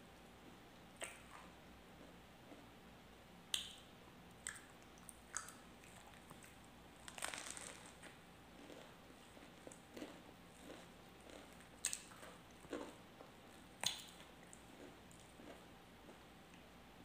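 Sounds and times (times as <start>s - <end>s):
bread crust crackling: 7.0s - 12.1s.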